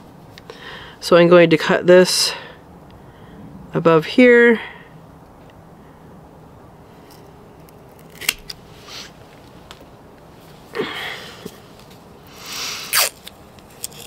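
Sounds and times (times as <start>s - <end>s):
stem snapping: 7.6s - 8.6s.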